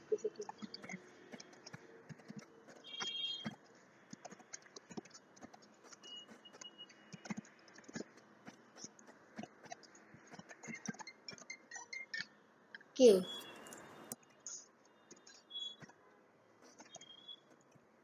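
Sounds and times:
keyboard typing: 0.0s - 12.2s.

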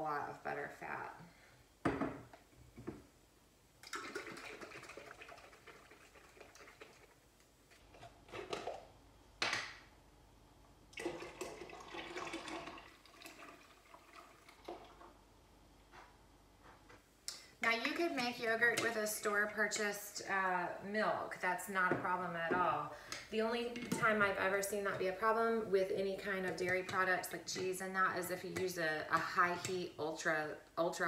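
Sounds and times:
milk pouring into metal pot: 3.8s - 7.2s, 10.9s - 15.1s.

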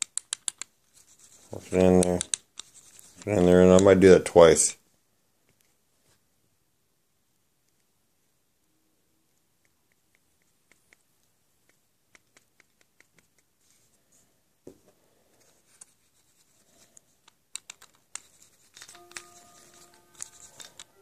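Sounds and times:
plastic wheel clicking and rubbing: 0.0s - 4.0s, 17.2s - 21.0s
faint steady tones: 18.2s - 21.0s.

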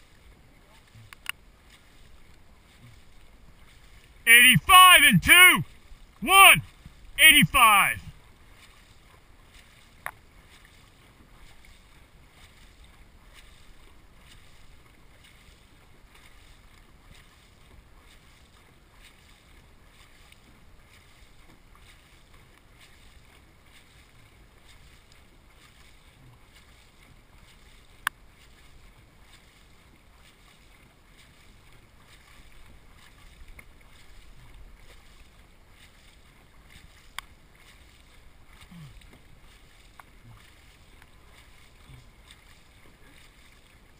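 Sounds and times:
water wash and paddle strokes: 0.0s - 4.2s, 5.6s - 43.9s.

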